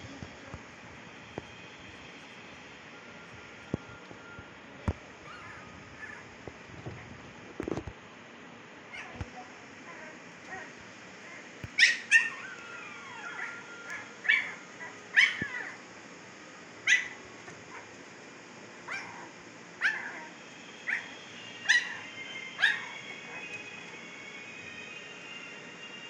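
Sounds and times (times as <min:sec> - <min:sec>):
puppies yelping: 0:05.3 - 0:06.3, 0:09.9 - 0:15.8, 0:16.8 - 0:17.9, 0:18.8 - 0:24.0.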